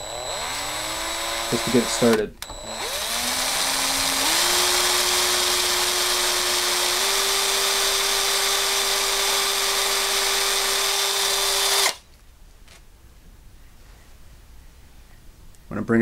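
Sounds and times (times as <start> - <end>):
cordless drill whining: 0.0 - 12.0.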